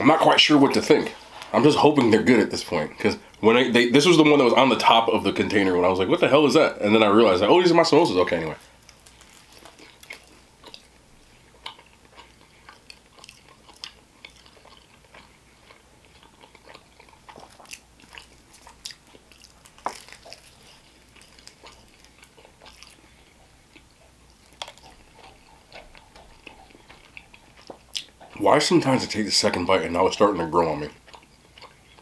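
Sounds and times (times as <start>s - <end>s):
wet chewing clicks and smacks: 8.4s - 29.6s, 30.6s - 32.0s.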